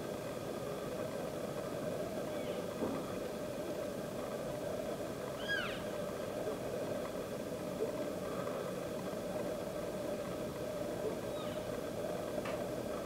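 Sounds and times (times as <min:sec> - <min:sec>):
steady low background noise: 0:00.0 - 0:13.0
elk mewing call: 0:05.4 - 0:05.9.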